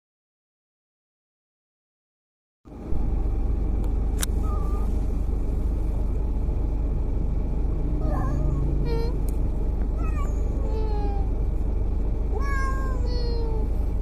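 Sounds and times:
low road rumble inside car: 2.7s - 14.0s
sharp click: 3.8s - 4.4s
cat meowing: 4.4s - 5.0s, 8.0s - 9.2s, 10.0s - 11.3s, 12.3s - 13.7s.

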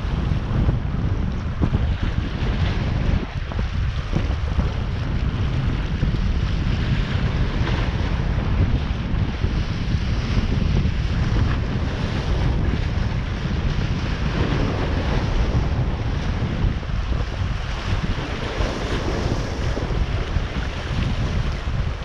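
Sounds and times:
waves washing: 0.0s - 22.0s
wind buffeting microphone: 0.0s - 22.0s.

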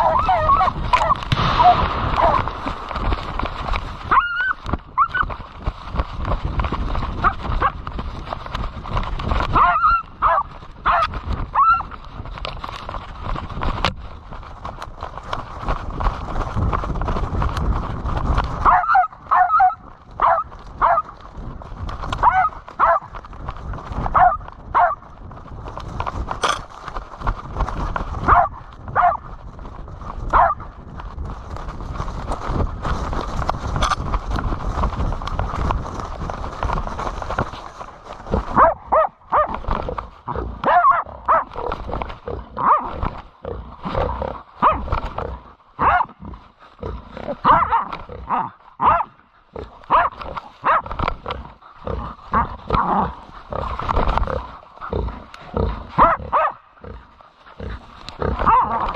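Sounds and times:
dog barking in high yelps: 0.0s - 2.4s, 4.1s - 5.3s, 9.6s - 11.9s, 18.6s - 21.1s, 22.2s - 23.1s, 24.2s - 25.0s, 28.3s - 29.2s, 30.3s - 30.6s, 38.6s - 39.6s, 40.6s - 41.5s, 42.6s - 42.9s, 44.6s - 44.8s, 45.8s - 46.1s, 47.4s - 49.2s, 49.9s - 50.8s, 56.0s - 56.6s, 58.4s - 58.8s
low rumbling of movement: 0.0s - 58.9s
rustling: 0.0s - 58.9s.

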